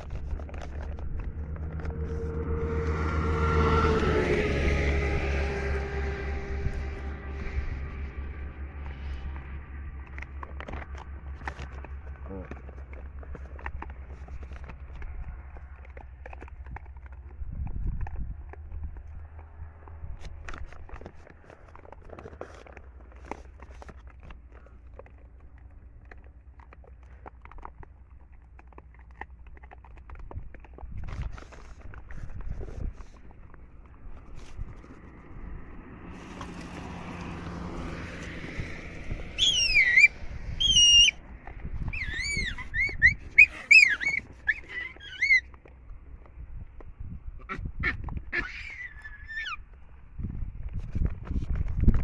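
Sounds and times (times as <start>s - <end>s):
clicks and crunches of pebbles: 0.0s - 3.9s, 5.0s - 52.0s
steady low rumble: 0.0s - 44.8s
baboons squealing: 39.3s - 41.2s, 41.8s - 45.5s, 47.5s - 49.6s.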